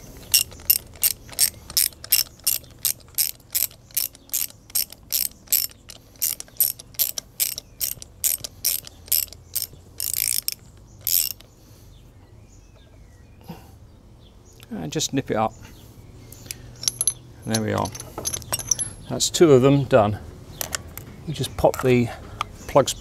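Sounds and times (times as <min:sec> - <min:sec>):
socket ratchet clicking: 0:00.2 - 0:11.5, 0:16.5 - 0:19.0.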